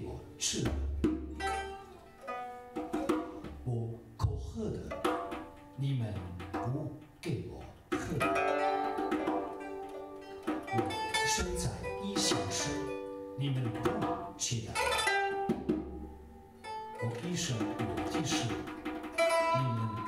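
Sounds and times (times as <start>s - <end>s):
pipa plucked melody: 0.0s - 20.0s
hand percussion strokes: 10.4s - 16.3s, 17.1s - 20.0s.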